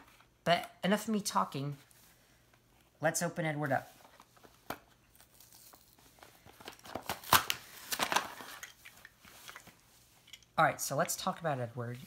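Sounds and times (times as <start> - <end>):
packaging rustling and tearing: 4.1 - 9.8.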